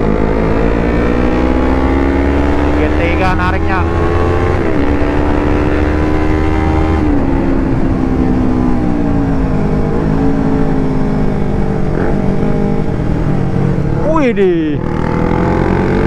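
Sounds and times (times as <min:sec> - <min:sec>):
wind rumble on microphone: 0:03.7 - 0:14.0.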